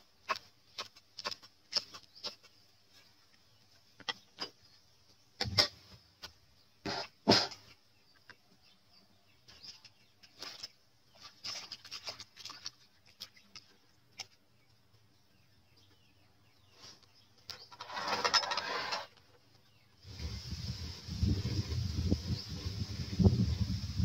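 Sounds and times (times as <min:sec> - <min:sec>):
hands rustling in bowl of water: 0:09.4 - 0:15.0.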